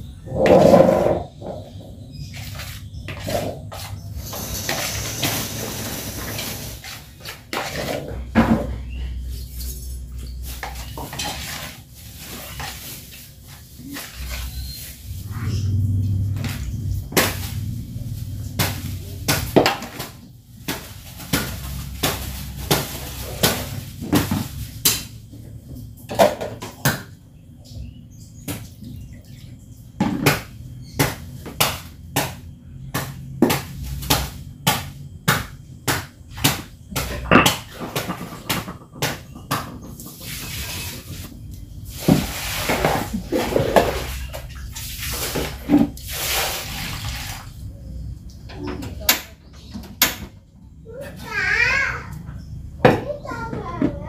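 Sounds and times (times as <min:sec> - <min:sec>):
plastic and stone knocking: 0:35.3 - 0:40.0
water poured into basin: 0:42.2 - 0:47.6.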